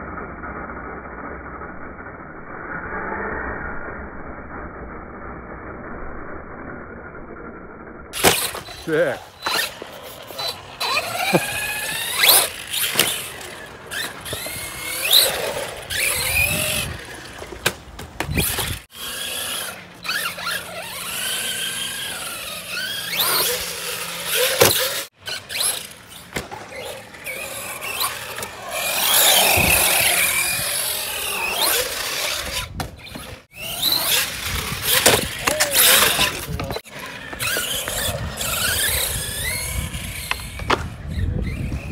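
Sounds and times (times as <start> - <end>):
tyre squeal on concrete: 8.2 - 17.6, 18.2 - 41.9
electric motors whining: 8.2 - 41.9.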